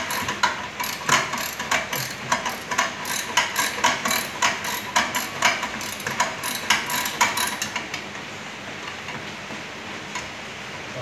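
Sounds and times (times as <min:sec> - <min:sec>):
ratchet wrench clicking: 0:00.0 - 0:07.8.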